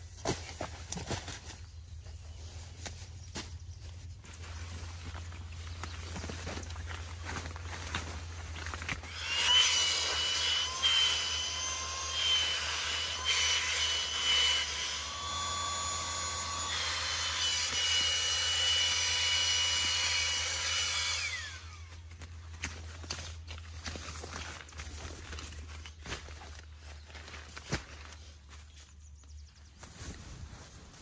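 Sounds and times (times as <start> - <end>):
small electric motor whining: 8.8 - 22.2.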